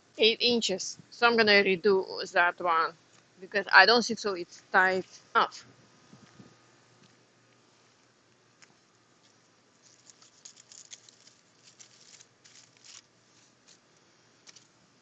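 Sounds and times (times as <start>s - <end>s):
plastic wrap and foil crinkling: 8.6s - 14.7s.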